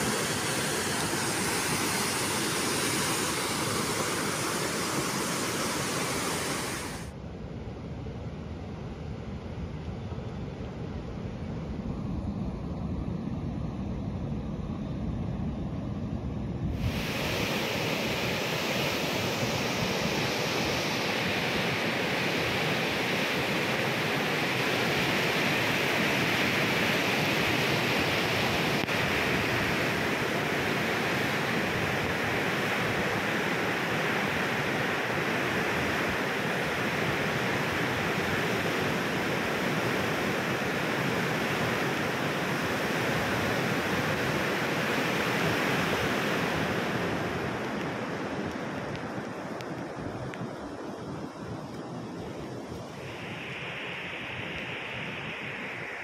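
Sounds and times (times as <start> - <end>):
river rapids rushing over rocks: 0.0 - 7.1.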